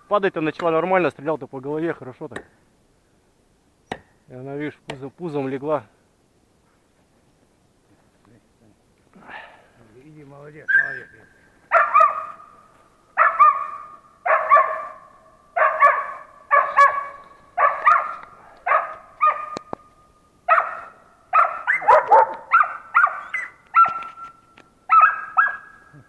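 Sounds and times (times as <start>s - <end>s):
dog barking sharply: 11.7s - 12.5s, 13.2s - 19.6s, 20.5s - 24.2s, 24.9s - 25.7s.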